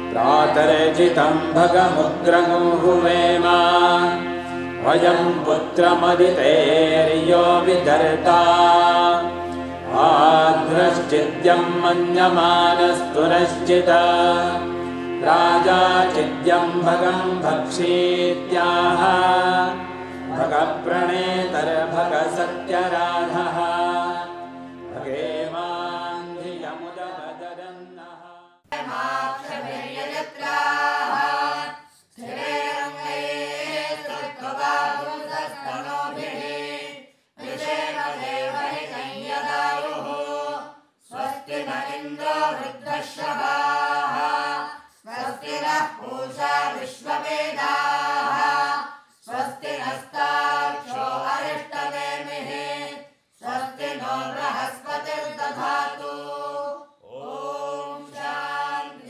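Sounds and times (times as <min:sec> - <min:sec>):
person chanting mantras: 0:00.0 - 0:30.3.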